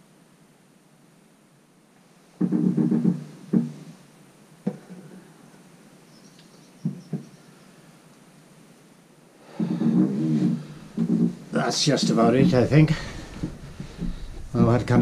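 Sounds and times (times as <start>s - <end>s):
wooden walking sticks knocking: 9.6s - 15.0s.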